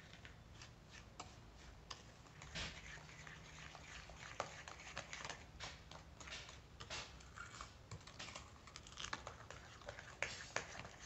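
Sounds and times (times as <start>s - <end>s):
spoon scraping glass bowl: 2.3s - 6.4s.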